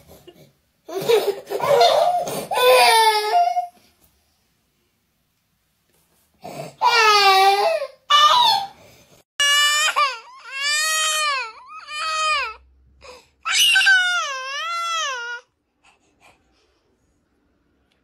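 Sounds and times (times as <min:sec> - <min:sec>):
small children crying: 0:13.5 - 0:15.5.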